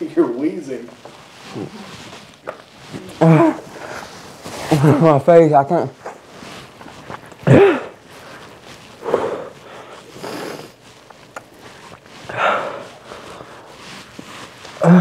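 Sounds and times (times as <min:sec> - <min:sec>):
man groaning: 0:03.2 - 0:03.6, 0:14.8 - 0:15.0
man breathing hard: 0:09.0 - 0:10.8, 0:12.3 - 0:13.8
sharp noisy sniffs: 0:09.0 - 0:10.8.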